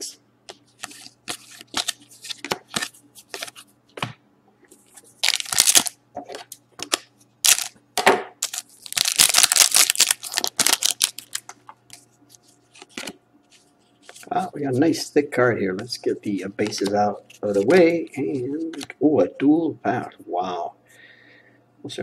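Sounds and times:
cards scraping: 0.5 - 3.7, 8.4 - 14.4, 16.6 - 18.9
foil wrapper crinkling: 5.2 - 6.0, 6.8 - 7.8, 8.4 - 11.5
scissors cutting foil pack: 8.4 - 11.4.

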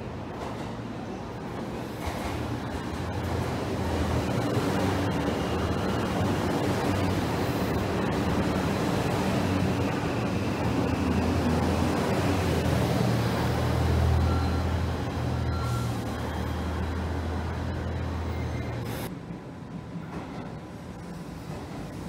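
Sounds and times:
station background noise: 0.0 - 22.0
train engine droning: 2.0 - 19.7.

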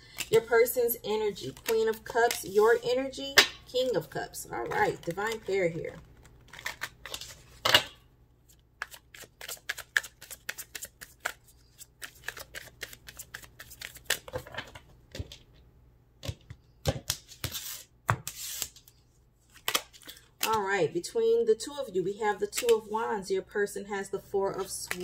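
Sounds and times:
cards being shuffled: 1.4 - 2.8, 4.6 - 7.6, 8.5 - 15.4, 16.3 - 20.6, 24.5 - 25.0.

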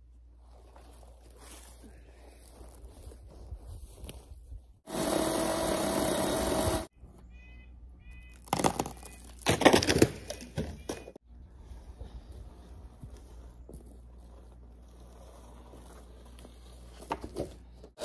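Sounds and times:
chainsaw cutting: 4.9 - 6.9
dead wood cracking and snapping: 8.3 - 10.5.

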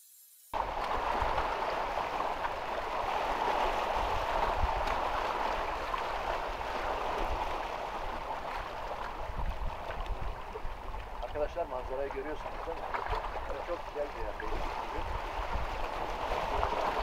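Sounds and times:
small waves washing against rocks: 0.6 - 17.0
wind buffeting microphone: 0.6 - 17.0.

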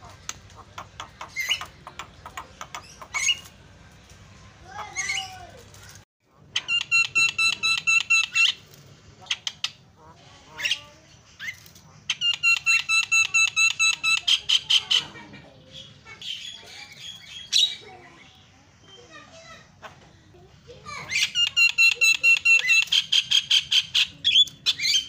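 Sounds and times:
bird singing rapid repeated notes: 0.0 - 3.6, 6.5 - 8.6, 10.7 - 14.9, 21.1 - 25.0
bird squawky calls: 0.0 - 3.6.

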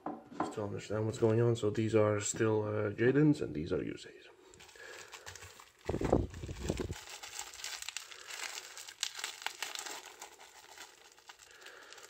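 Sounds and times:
foil wrapper crinkling: 4.5 - 12.0.

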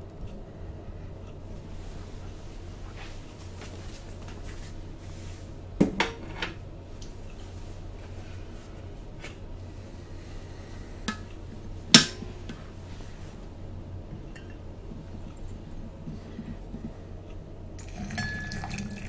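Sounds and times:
low steady hum: 0.0 - 19.0
crockery clinking: 17.8 - 19.0.

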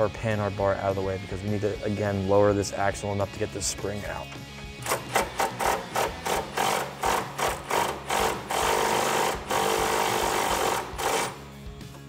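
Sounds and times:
cordless power tool bursts: 4.8 - 11.4.

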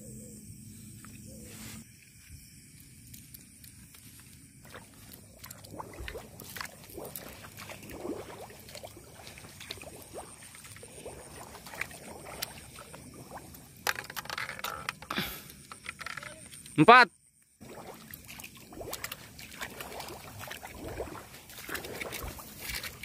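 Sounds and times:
footsteps wading through water: 2.6 - 14.2, 17.6 - 23.0.

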